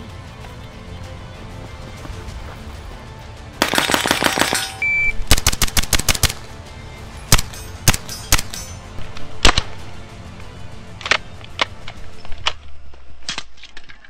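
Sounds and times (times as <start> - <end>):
background music: 0.0 - 14.0
submachine gun automatic fire: 3.6 - 6.4
short high beep: 4.8 - 5.2.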